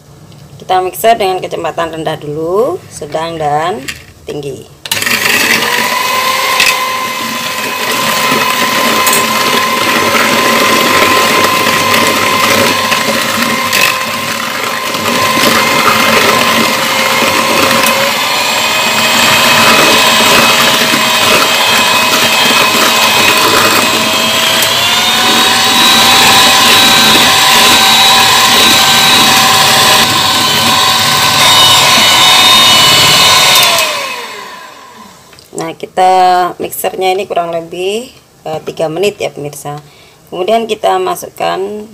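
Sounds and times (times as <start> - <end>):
electric hand mixer whining: 4.9 - 35.4.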